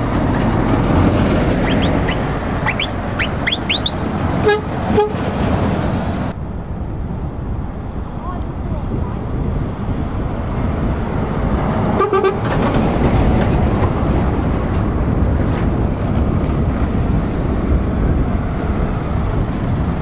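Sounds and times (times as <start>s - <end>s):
truck diesel engine running: 0.0s - 6.3s
truck horn toot: 1.6s - 5.2s, 11.9s - 12.5s.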